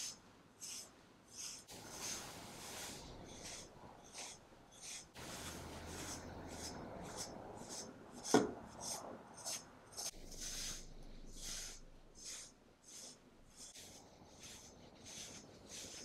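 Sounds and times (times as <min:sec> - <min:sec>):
brush rasping through cat fur: 0:00.0 - 0:16.0.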